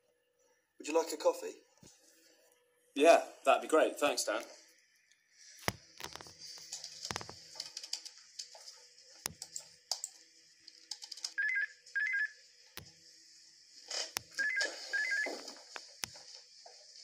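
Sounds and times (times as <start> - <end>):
desk telephone ringing: 11.4 - 12.3, 14.4 - 15.3.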